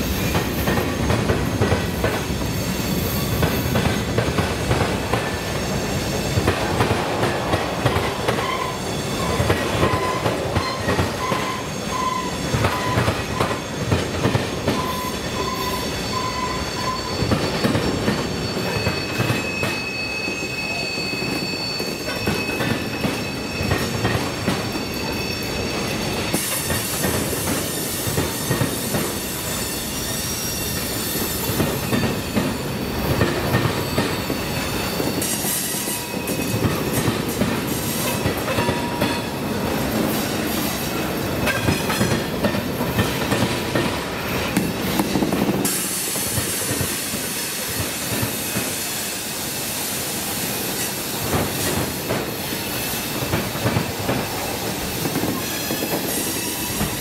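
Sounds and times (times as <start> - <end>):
train wheels clacking over rail joints: 0.0 - 15.6, 25.8 - 30.1, 30.7 - 49.0, 50.7 - 57.0
thin wheel squeals: 8.4 - 14.0, 14.7 - 24.0, 24.6 - 27.0.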